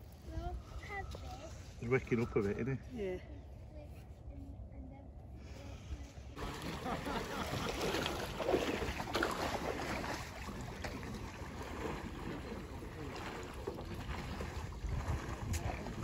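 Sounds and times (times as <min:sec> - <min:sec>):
wind rumbling on microphone: 0:03.4 - 0:16.0
water sloshing and splashing: 0:06.3 - 0:16.0.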